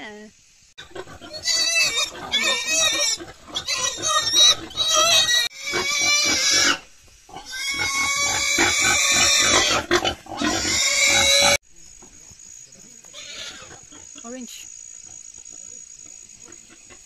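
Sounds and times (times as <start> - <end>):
pigs squealing: 0.8 - 11.6, 13.1 - 14.3.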